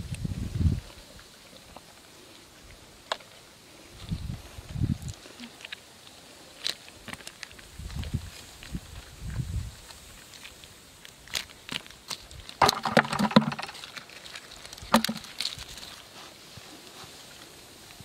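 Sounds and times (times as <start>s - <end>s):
dry mud crumbling by hand: 11.2s - 16.1s.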